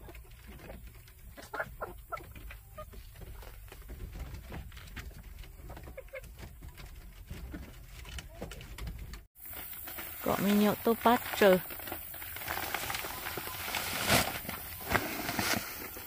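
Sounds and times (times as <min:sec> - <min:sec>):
chickens clucking: 0:00.0 - 0:04.4, 0:05.0 - 0:07.7.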